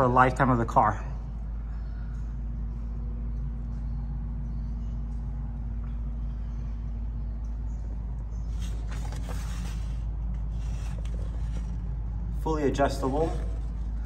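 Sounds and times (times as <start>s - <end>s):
low mechanical hum: 0.0s - 14.0s
rubbing and scraping: 8.4s - 14.0s.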